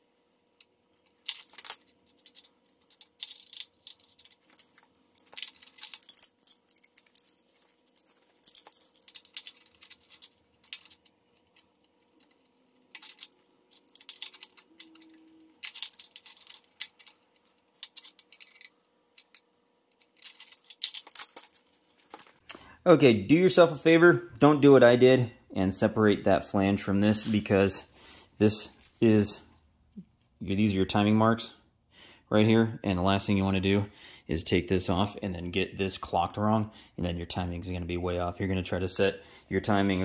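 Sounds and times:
metal tools clinking and rattling: 1.2s - 22.4s.

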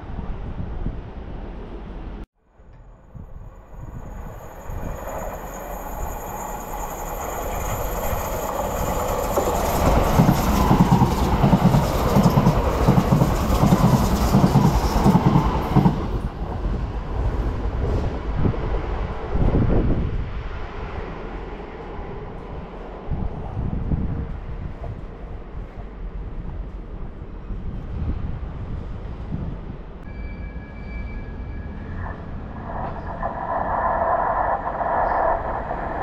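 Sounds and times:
train passing at speed: 0.0s - 36.0s
high ringing of rails: 2.4s - 17.2s, 30.0s - 36.0s.

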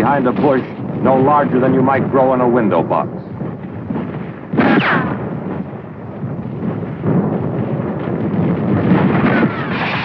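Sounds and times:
explosions: 3.4s - 10.0s
gunfire: 4.5s - 5.3s, 7.8s - 10.0s.

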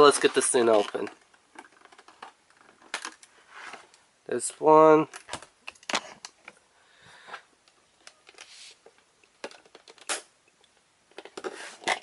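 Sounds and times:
plastic packaging rustling and clicking: 0.0s - 4.0s, 7.7s - 12.0s.

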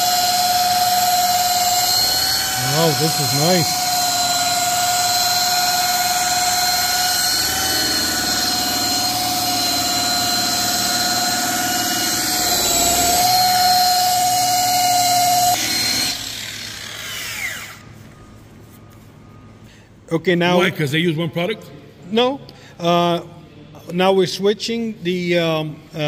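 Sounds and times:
rotary polisher whining: 0.0s - 19.5s.

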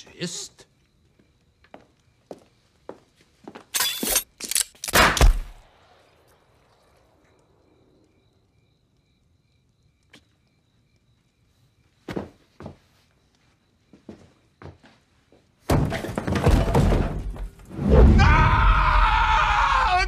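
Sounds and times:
pistol shot: 4.9s - 6.1s.

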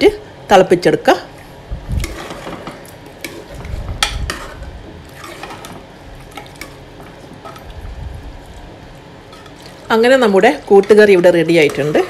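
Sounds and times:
metal spoon scraping a pot: 2.0s - 6.8s.

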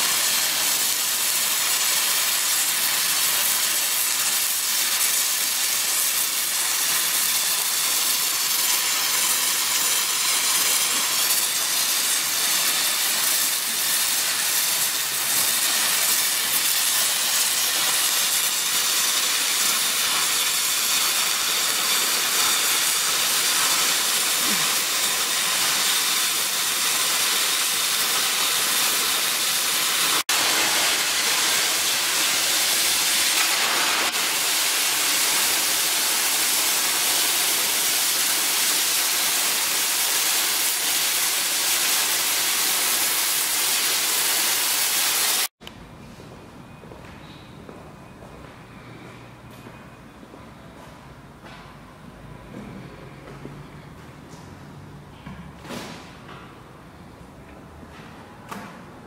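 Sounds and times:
welding arc hissing: 0.0s - 45.6s.

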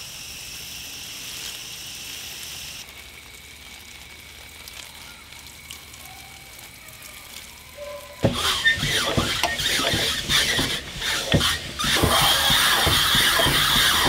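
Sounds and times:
hose reel rattling and clattering: 8.2s - 14.0s.

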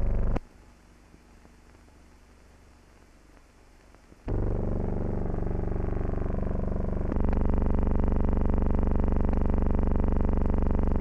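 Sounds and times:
harvester engine droning: 4.3s - 11.0s.

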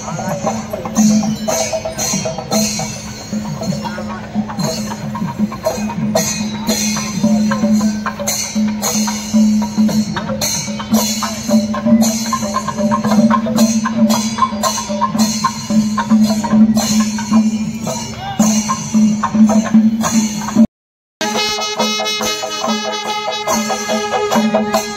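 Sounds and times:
drums playing fast rhythm: 0.0s - 24.9s
pitched notes: 21.2s - 24.9s.

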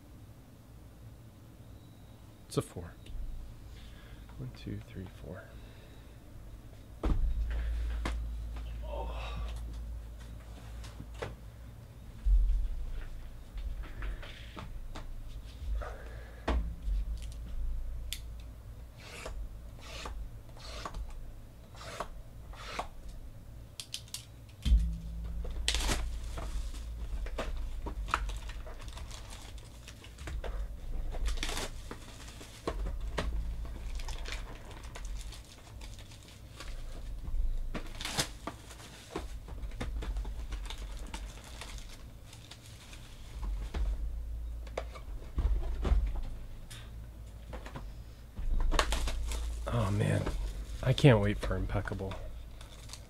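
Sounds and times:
low background hum: 0.0s - 53.0s
plastic wrap tearing and crinkling: 25.5s - 30.2s, 31.0s - 37.1s, 37.8s - 39.2s, 40.2s - 43.3s, 48.7s - 50.6s, 52.5s - 53.0s.

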